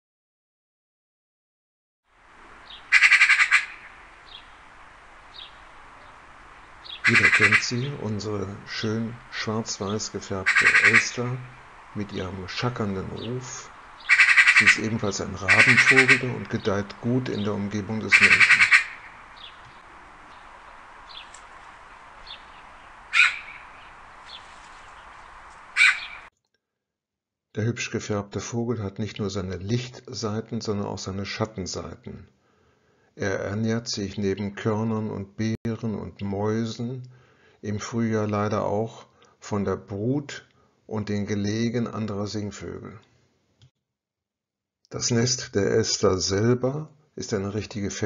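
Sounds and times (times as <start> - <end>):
steady hiss: 2.2 - 26.3
magpie calling: 2.6 - 4.6, 5.3 - 8.0, 8.7 - 12.0, 13.1 - 16.6, 17.4 - 26.3
magpie chattering call: 2.7 - 4.4, 6.8 - 7.7, 10.4 - 11.6, 14.0 - 14.9, 15.5 - 16.4, 18.1 - 19.6, 22.3 - 24.4, 25.7 - 26.3.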